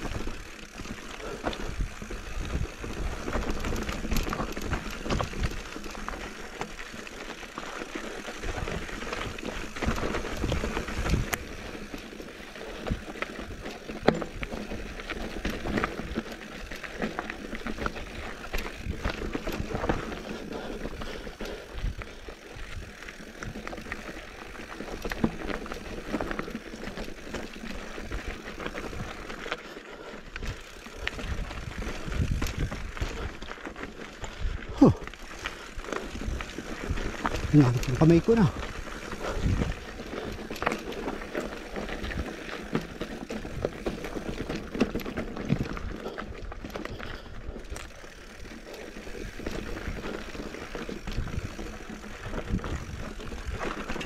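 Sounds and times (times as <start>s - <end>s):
bike knocking and rattling: 0.0s - 54.0s
tyres crunching over stones: 0.0s - 54.0s.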